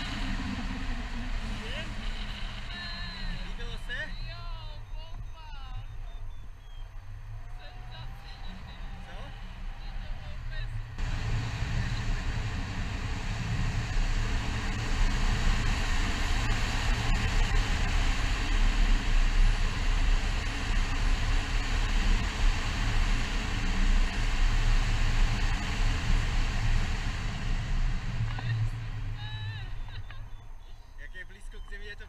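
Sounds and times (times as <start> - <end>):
wind buffeting microphone: 0.0 - 3.6, 10.8 - 30.8.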